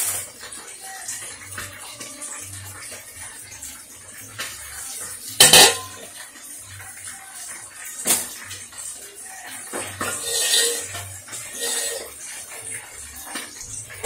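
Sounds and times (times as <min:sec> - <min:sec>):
metal pan clattering on countertop: 0:05.4 - 0:06.1, 0:08.0 - 0:08.4, 0:09.7 - 0:12.2.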